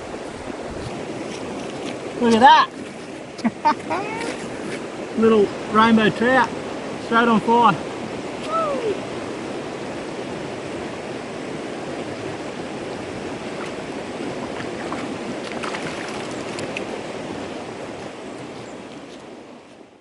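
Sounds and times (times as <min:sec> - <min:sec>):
river water rushing over rocks: 0:00.0 - 0:20.0
small splashes: 0:13.4 - 0:17.0.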